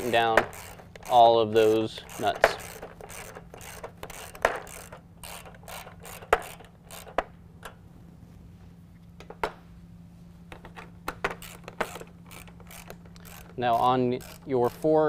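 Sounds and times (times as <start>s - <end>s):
hand ratchet clicking: 0.0s - 7.8s, 10.5s - 15.0s.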